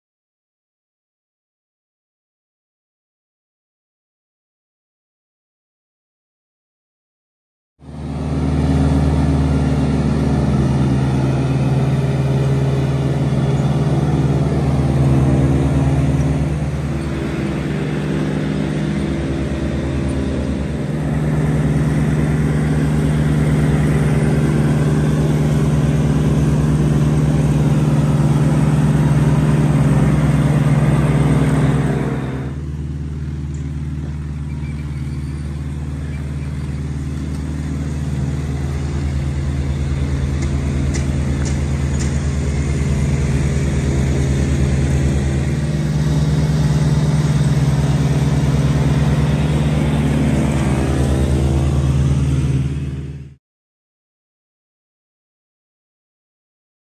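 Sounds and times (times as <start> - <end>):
wheels rolling on rails: 9.2 - 52.0.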